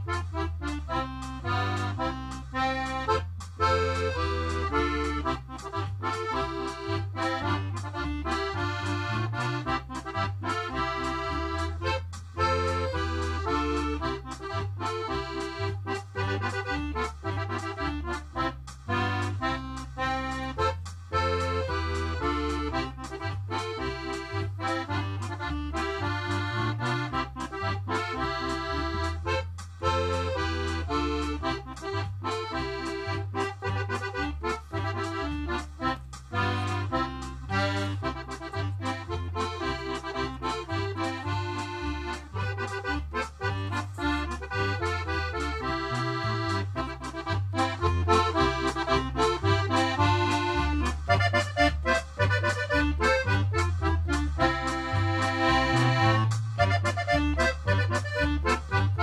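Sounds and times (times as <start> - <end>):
accordion tune over bass beat: 0.0 - 59.0.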